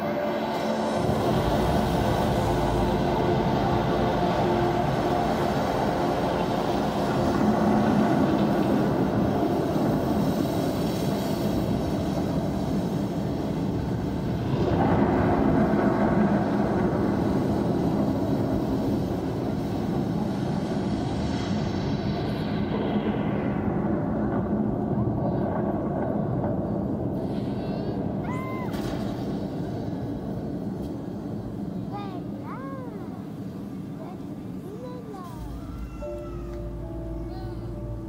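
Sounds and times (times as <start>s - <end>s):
rumbling sound effect over loudspeakers: 0.0s - 38.0s
low held tones: 34.8s - 38.0s.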